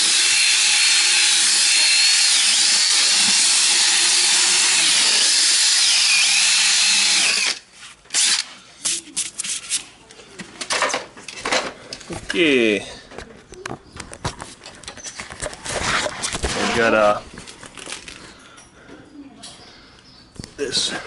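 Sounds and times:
power drill sanding whine: 0.0s - 7.6s.

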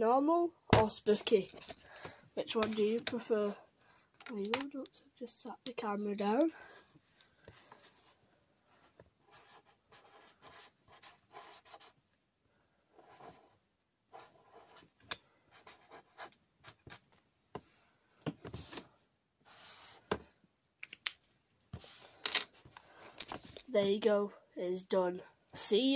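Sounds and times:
marker pen scratching on paper: 9.2s - 12.0s, 13.0s - 14.9s, 15.5s - 17.0s, 19.5s - 20.2s, 21.7s - 22.8s.

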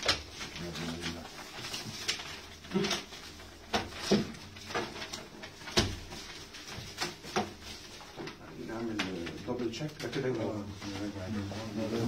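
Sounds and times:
paper sheets rustling: 0.0s - 12.0s.

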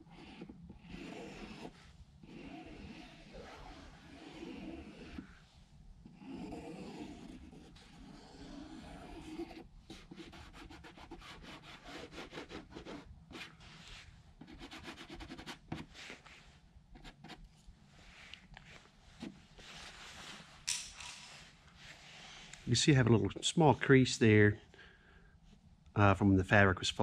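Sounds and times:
pencil rubbing on fabric: 0.0s - 17.4s.

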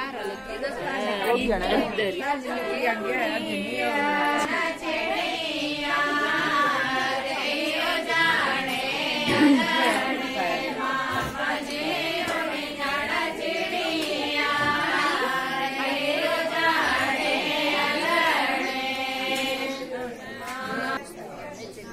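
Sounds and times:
women singing unaccompanied: 0.0s - 21.1s.

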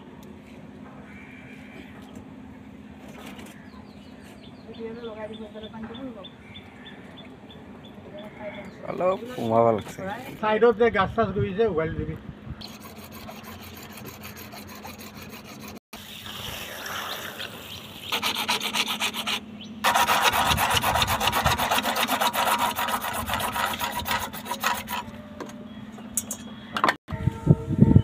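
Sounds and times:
hacksaw sawing plastic pipe: 12.6s - 15.8s, 18.1s - 25.1s.

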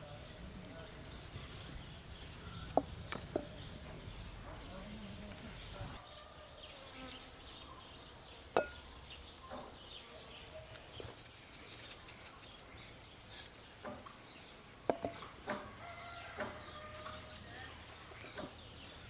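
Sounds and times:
birds calling: 0.0s - 19.0s
clinks against glass: 8.6s - 8.8s.

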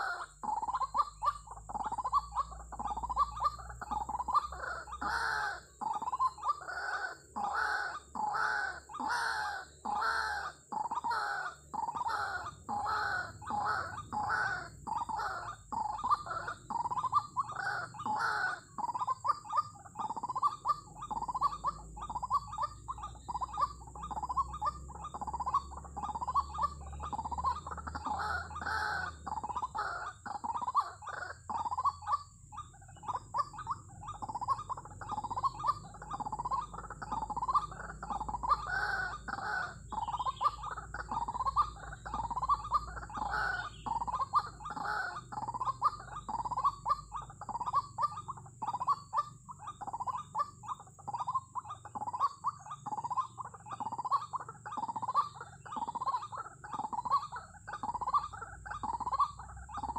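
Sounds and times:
waterhen calling: 0.0s - 59.9s.

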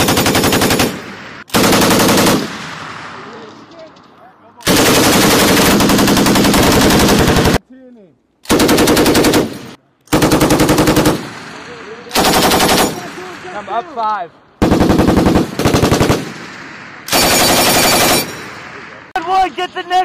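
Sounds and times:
machine guns firing in bursts: 0.0s - 3.5s, 4.6s - 7.6s, 8.5s - 13.8s, 14.6s - 19.1s
gunshot echo: 2.4s - 4.0s, 11.2s - 12.1s, 16.2s - 17.2s.

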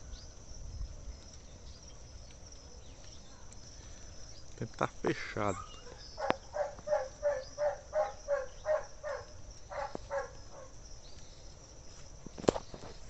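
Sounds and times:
animal yelping calls: 5.6s - 10.7s.

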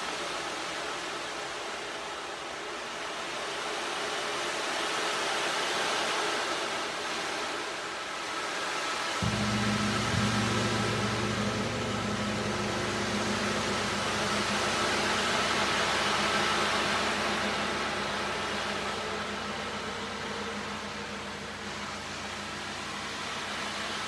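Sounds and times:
large gong ringing: 9.2s - 24.0s.

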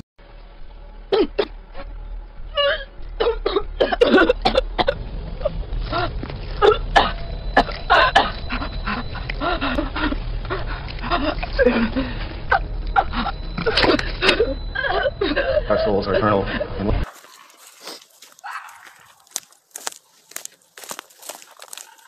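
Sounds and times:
woman coughing and retching: 1.1s - 1.5s, 3.2s - 5.0s, 6.6s - 8.7s.

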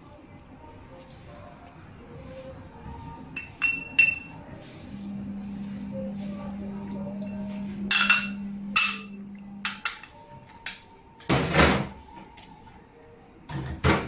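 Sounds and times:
low hum: 2.0s - 10.3s
cookware knocking and clinking: 3.4s - 4.3s, 7.9s - 10.8s.

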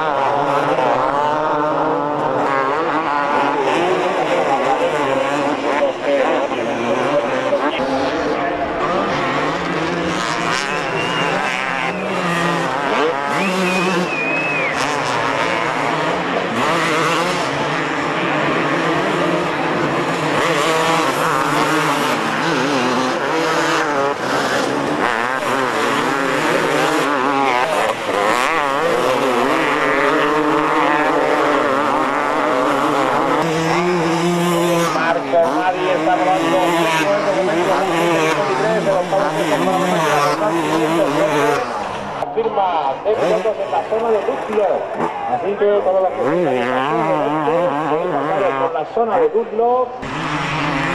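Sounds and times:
motocross bike engines revving: 0.0s - 50.9s.

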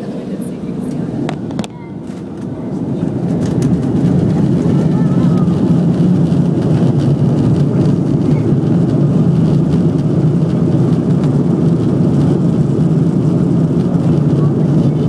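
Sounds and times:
jet engines low rumble: 0.0s - 15.0s.

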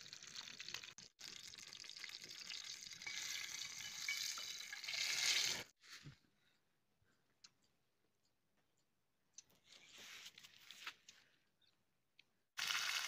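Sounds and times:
fish frying in sizzling oil: 12.6s - 13.0s.

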